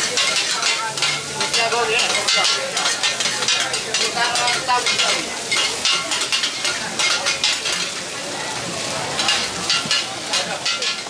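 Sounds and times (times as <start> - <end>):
metal spatula scraping a wok: 0.0 - 8.1, 9.2 - 11.0
food sizzling: 0.0 - 11.0.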